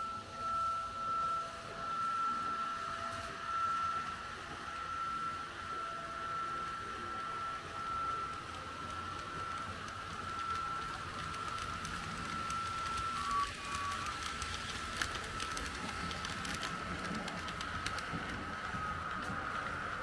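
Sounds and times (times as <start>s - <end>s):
model train motor whine: 0.0s - 20.0s
wheels clicking over track: 7.9s - 20.0s.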